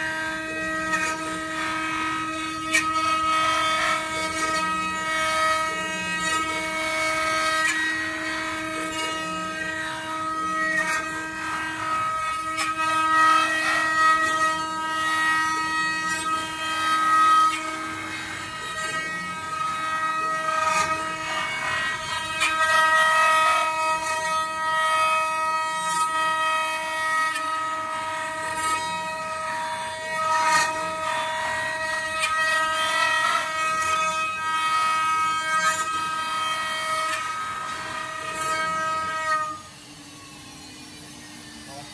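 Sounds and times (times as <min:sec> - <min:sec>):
rough wood cutting noise: 0:00.0 - 0:41.9
router spindles whining: 0:00.0 - 0:41.9.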